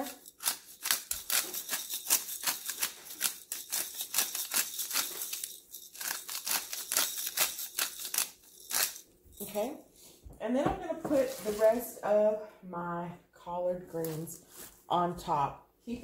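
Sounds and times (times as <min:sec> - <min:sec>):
pepper grinder crunching: 0:00.0 - 0:09.5.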